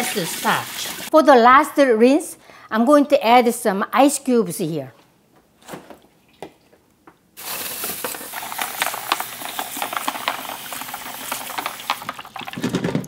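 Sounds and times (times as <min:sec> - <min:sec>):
ice cubes clicking: 0:07.4 - 0:13.0
tap water running into bowl: 0:07.7 - 0:13.0.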